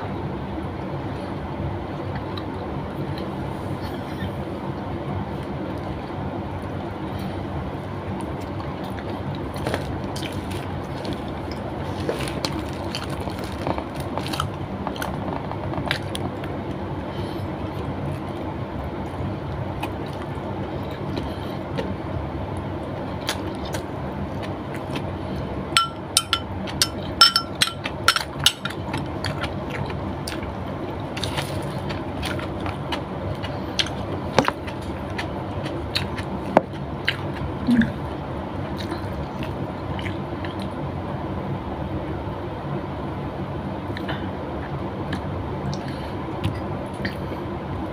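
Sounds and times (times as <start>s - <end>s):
steady background noise: 0.0s - 47.9s
person chewing: 8.2s - 16.6s, 17.6s - 22.0s, 23.2s - 25.1s, 26.6s - 38.1s.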